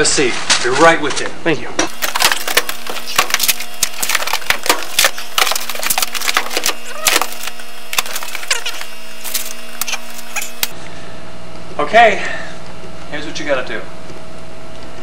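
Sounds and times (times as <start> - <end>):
books and binders knocking: 1.9 - 10.7
paper pages flipping and rustling: 1.9 - 10.7.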